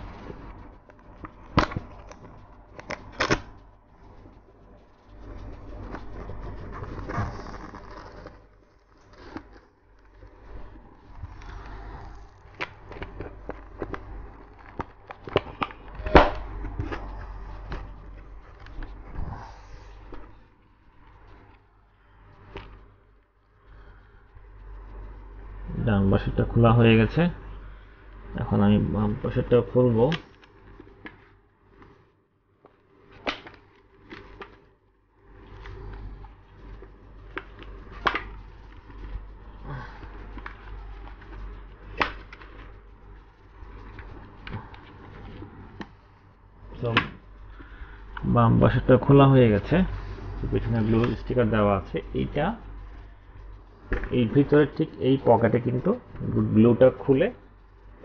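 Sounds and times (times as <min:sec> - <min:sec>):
padding rubbing against helmet shell: 0:00.0 - 0:19.0.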